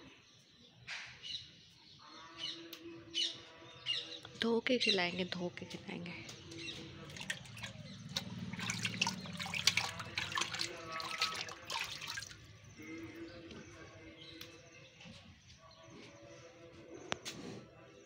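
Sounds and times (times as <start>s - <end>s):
water splashing in a tub: 6.4s - 13.8s.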